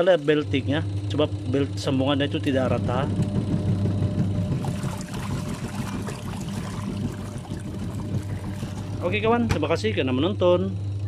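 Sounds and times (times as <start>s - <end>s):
washing machine churning water: 0.0s - 11.0s
drive belt ticking: 2.5s - 4.6s.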